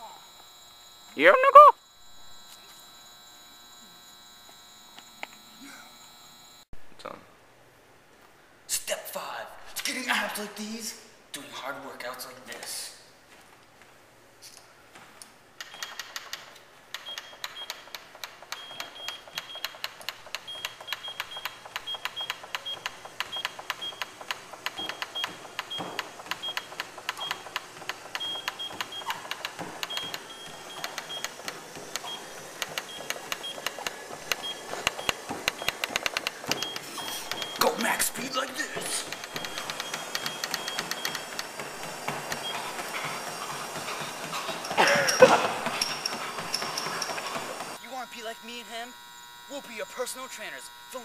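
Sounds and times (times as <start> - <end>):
high key beep: 36.5 - 41.2.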